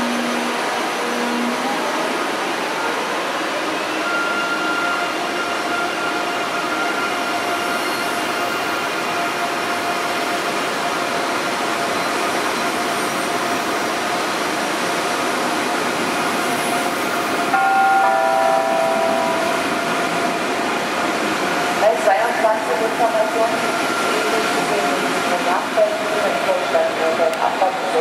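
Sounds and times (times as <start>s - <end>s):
electric train whine: 3.6s - 28.0s.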